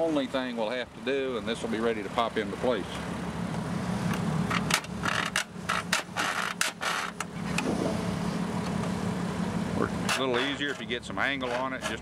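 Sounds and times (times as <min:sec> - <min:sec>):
engine idling: 0:00.0 - 0:12.0
hand file rasping on metal: 0:10.1 - 0:12.0.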